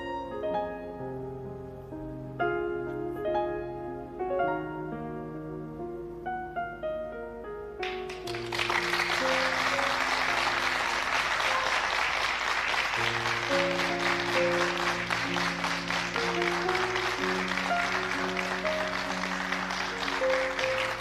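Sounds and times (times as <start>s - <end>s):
soft background music: 0.0s - 21.0s
audience applauding: 7.8s - 21.0s.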